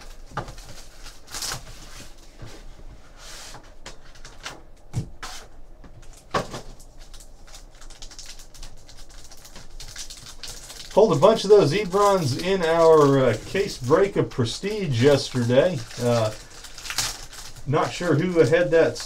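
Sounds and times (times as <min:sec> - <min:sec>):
foil pack crinkling: 0:00.0 - 0:02.2, 0:06.0 - 0:19.0.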